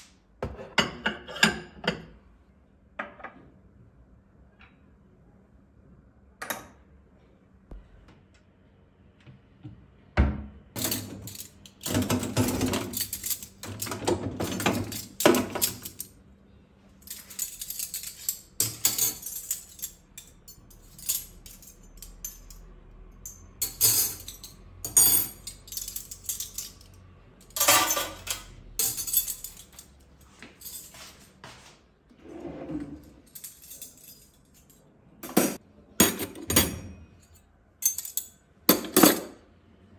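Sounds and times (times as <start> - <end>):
hard objects clinking and clattering: 10.8 - 16.1, 23.3 - 29.9.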